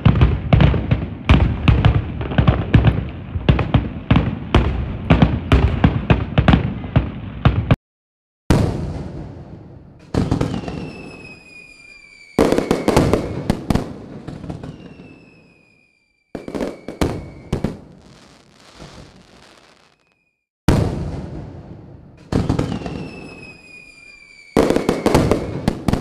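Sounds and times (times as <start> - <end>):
firework bangs: 0.0 - 7.8, 8.5 - 26.0
thin high whistle: 10.5 - 13.0, 14.6 - 17.6, 18.8 - 20.4, 22.7 - 25.1.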